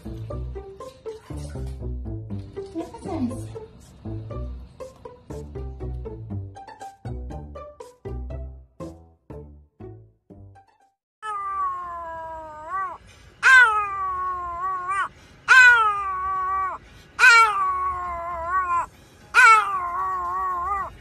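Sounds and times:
dog howling: 11.2 - 21.0.

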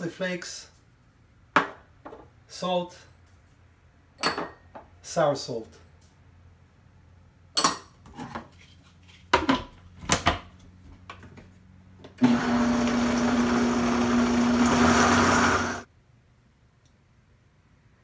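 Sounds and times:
blender motor running: 12.2 - 15.9.

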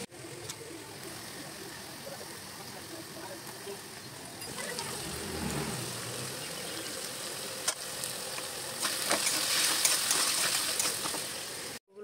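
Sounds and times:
vegetables sizzling in oil: 0.0 - 11.8
metal spatula scraping pan: 8.9 - 11.2.

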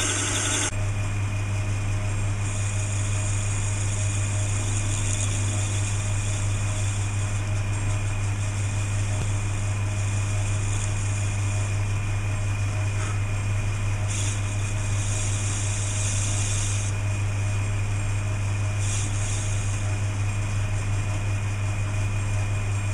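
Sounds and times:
metal lathe motor hum: 0.0 - 1.0, 1.6 - 15.9.

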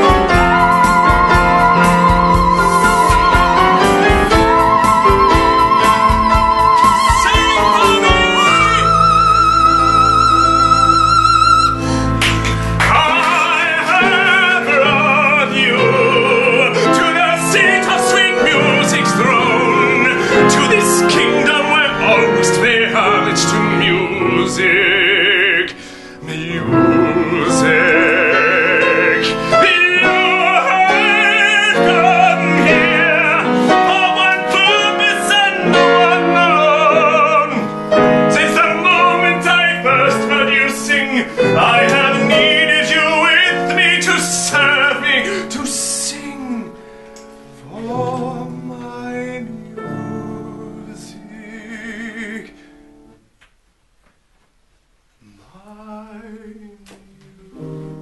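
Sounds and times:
instrumental accompaniment: 0.0 - 53.5
woman and man singing duet: 0.3 - 12.0, 12.9 - 46.7.

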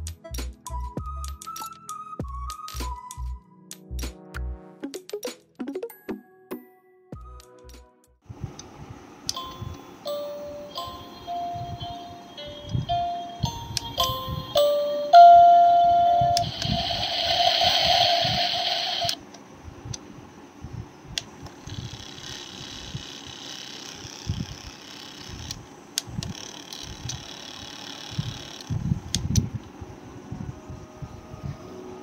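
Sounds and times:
faint steady hum: 8.3 - 32.0
electronic tones from small speaker: 10.6 - 19.2
hissing electronic sound: 15.8 - 19.2.

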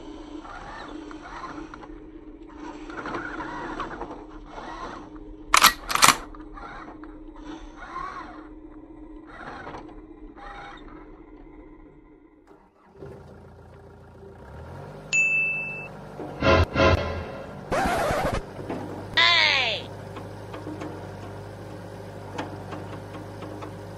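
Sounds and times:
sharp clicks: 5.6 - 6.3.

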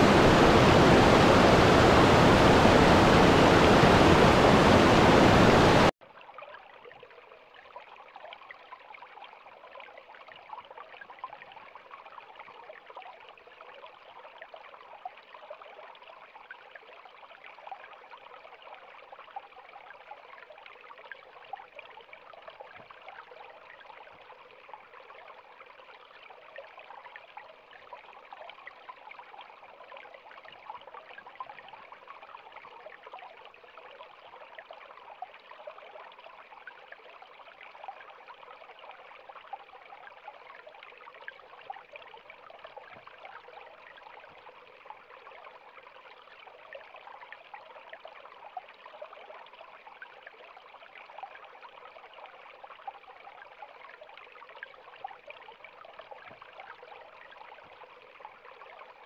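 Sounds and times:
stream flowing over rocks: 0.0 - 5.9.

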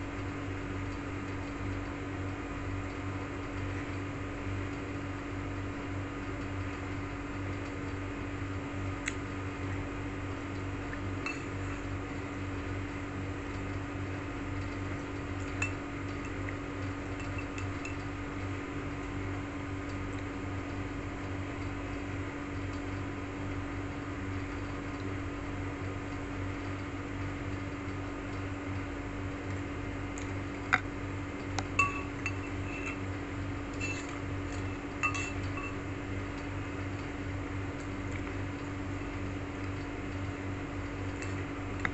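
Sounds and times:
steady low hum: 0.0 - 41.9
fork clinking ceramic bowl: 11.3 - 11.5, 31.8 - 33.0, 33.8 - 34.2, 35.0 - 35.8.

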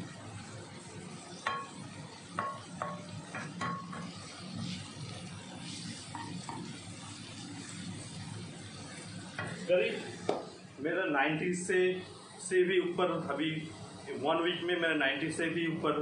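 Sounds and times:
mushrooms sizzling in a pan: 0.0 - 16.0
spoon knocking on pan: 1.4 - 4.2, 6.1 - 6.7.

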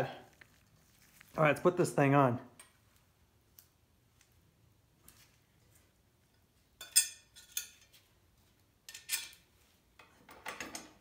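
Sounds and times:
metal blade clinking: 6.8 - 7.9.

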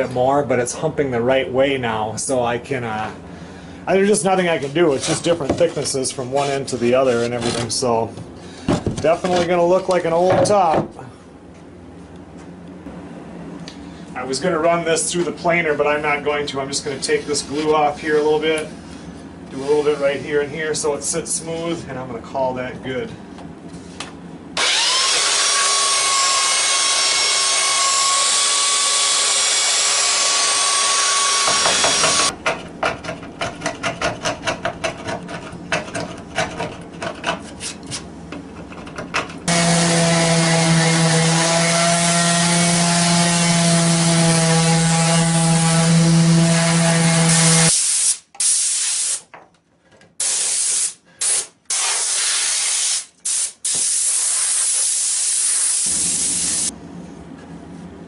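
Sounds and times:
hand tool scraping wood: 4.5 - 7.9, 9.0 - 9.6, 31.4 - 39.3
compressed air blasts: 47.7 - 49.3, 50.2 - 56.7.

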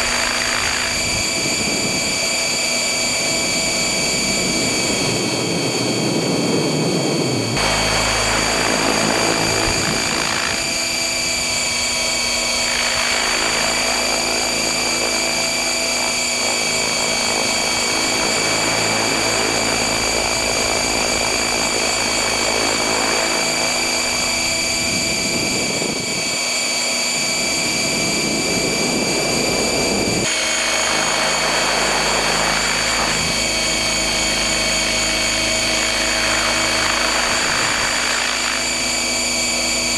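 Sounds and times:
high-pitched motor and gear whine: 0.0 - 39.9
rushing rotor wash: 7.4 - 26.3, 27.9 - 39.9.

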